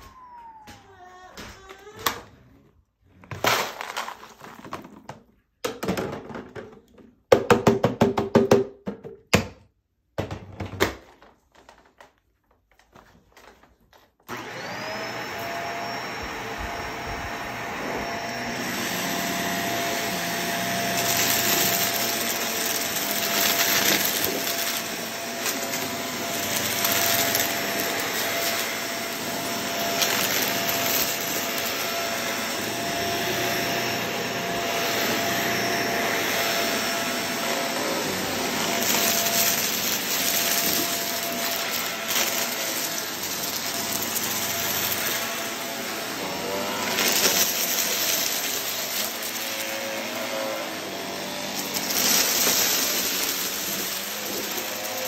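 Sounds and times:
vacuum cleaner motor whine: 14.3 - 55.0
vacuum sucking up debris: 14.3 - 55.0.

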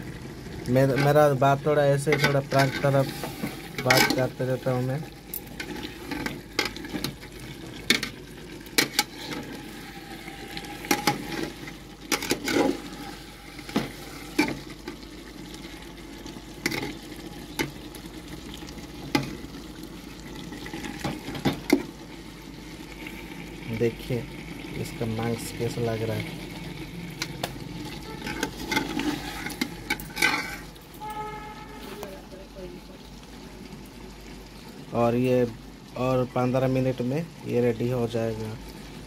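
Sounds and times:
curry sizzling: 0.0 - 39.0
metal spatula scraping a pot: 2.0 - 4.4, 8.8 - 14.7, 27.8 - 32.0.

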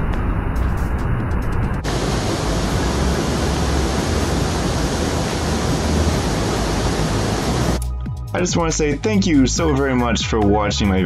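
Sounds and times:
waterfall roaring: 1.8 - 7.8.

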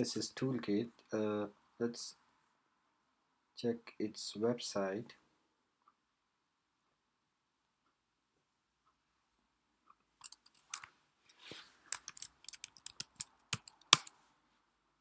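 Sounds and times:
computer keyboard typing: 11.9 - 14.1.

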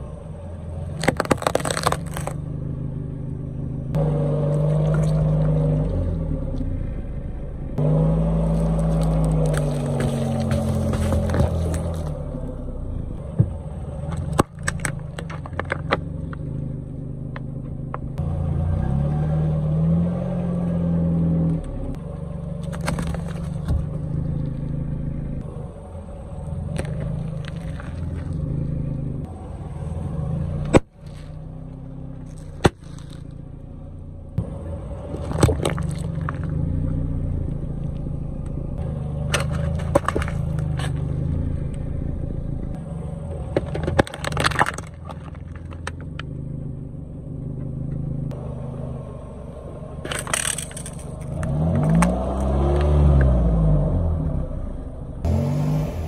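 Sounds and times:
car engine running: 0.0 - 56.0
objects cracking under tyre: 0.8 - 2.5, 8.4 - 12.6, 13.4 - 18.2, 22.6 - 24.8, 26.5 - 29.1, 30.6 - 33.5, 35.0 - 37.0, 39.2 - 41.8, 42.7 - 46.6, 50.0 - 53.4.

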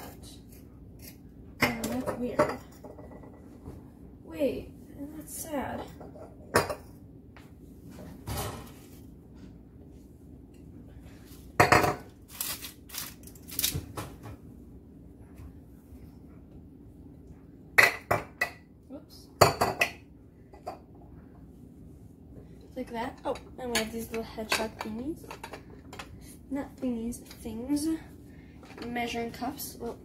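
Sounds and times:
kitchenware clinking and clattering: 1.6 - 3.5, 5.7 - 6.9, 11.6 - 12.1, 22.9 - 26.1.

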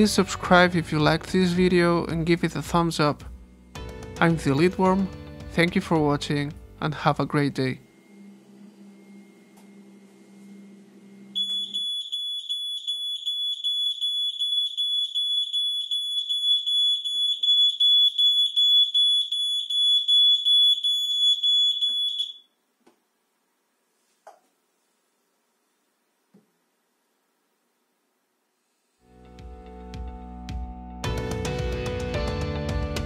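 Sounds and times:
smoke detector alarm: 11.3 - 22.6.

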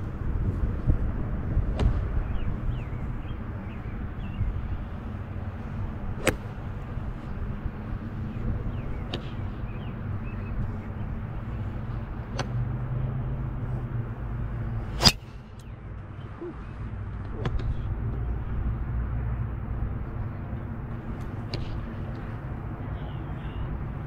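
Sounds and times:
steady low rumble: 0.0 - 24.0
golf club striking ball: 6.2 - 6.5, 14.9 - 15.3.

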